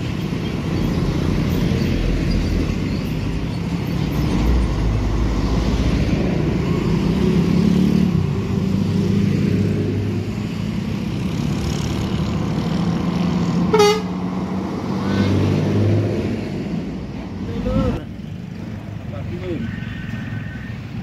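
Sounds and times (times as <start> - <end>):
traffic passing: 0.0 - 21.0
vehicle horn toot: 13.7 - 14.1.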